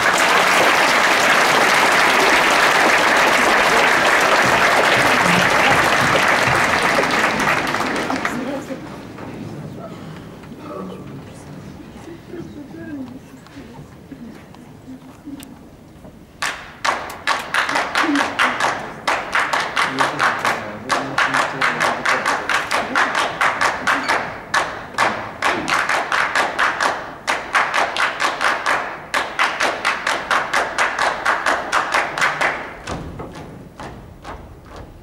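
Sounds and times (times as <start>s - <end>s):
rhythmic hand-clapping in unison: 0.0s - 8.8s, 16.4s - 35.0s.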